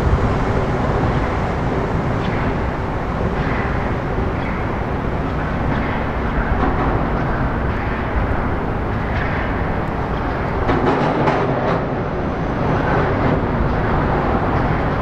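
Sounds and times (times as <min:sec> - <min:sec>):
distant hydrofoil boat rumbling: 0:00.0 - 0:15.0.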